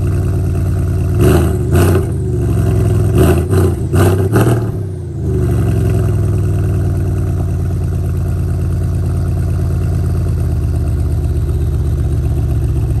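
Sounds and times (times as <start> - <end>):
car engine idling: 0.0 - 13.0
engine revving: 1.1 - 6.8.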